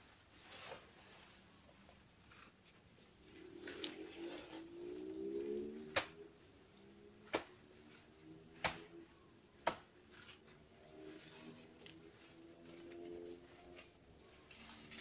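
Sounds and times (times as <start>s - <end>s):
blade chopping plant trunk: 5.9s - 6.2s, 7.3s - 7.6s, 8.6s - 8.9s, 9.6s - 9.9s.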